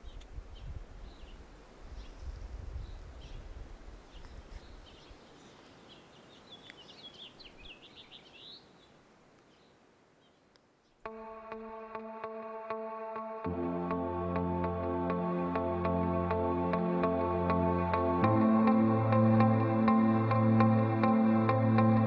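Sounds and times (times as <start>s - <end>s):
birds chirping and singing: 4.1s - 10.4s.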